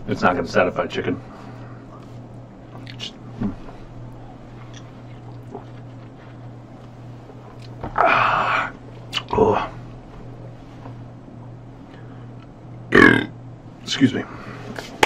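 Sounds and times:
steady low hum: 0:00.0 - 0:15.0
man swallowing: 0:02.7 - 0:03.6.

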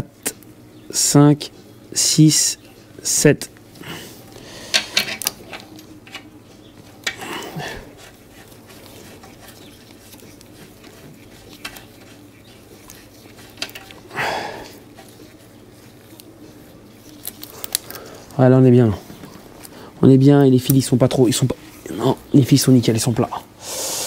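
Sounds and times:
soft rustling: 0:05.6 - 0:19.9.

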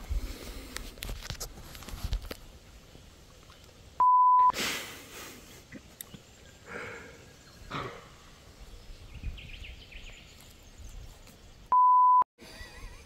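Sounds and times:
censor bleep: 0:04.0 - 0:04.5, 0:11.7 - 0:12.3.

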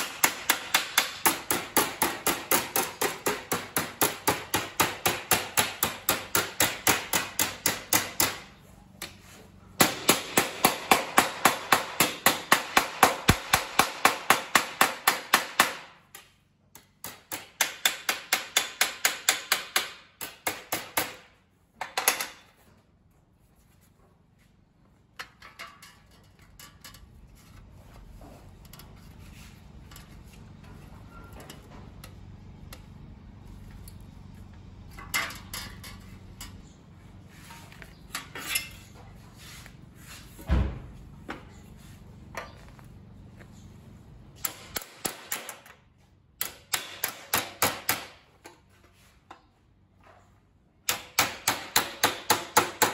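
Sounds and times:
hammer striking sheet steel: 0:00.0 - 0:22.5, 0:44.4 - 0:45.8, 0:46.4 - 0:48.3, 0:50.8 - 0:52.9
faint handling of metal: 0:24.9 - 0:33.0.

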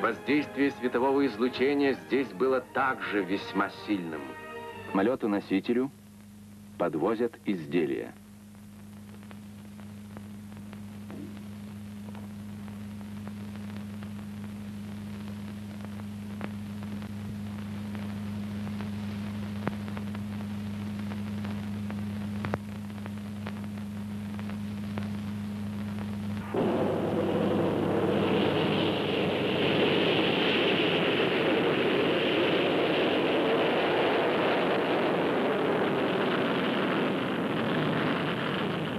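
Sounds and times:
low hum with clicks: 0:08.0 - 0:26.6
jet engine rush: 0:26.4 - 0:38.9.

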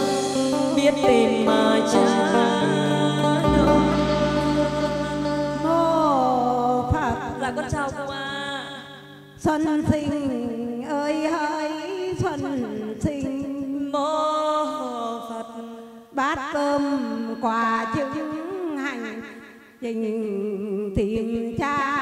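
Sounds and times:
instrumental accompaniment: 0:00.0 - 0:09.4
woman singing through loudspeakers: 0:00.0 - 0:15.6, 0:16.2 - 0:22.0.

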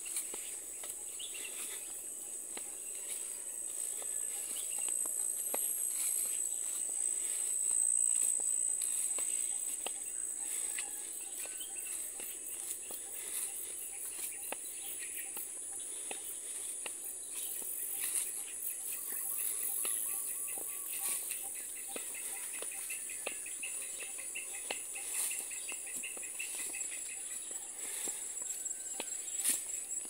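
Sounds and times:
footsteps on grassy path: 0:00.0 - 0:30.0
insect chorus drone: 0:00.0 - 0:30.0.

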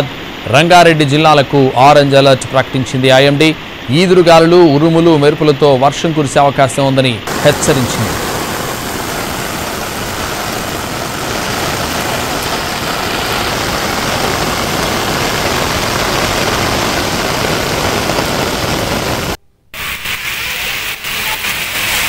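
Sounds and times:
heavy rain pouring: 0:07.3 - 0:22.0.

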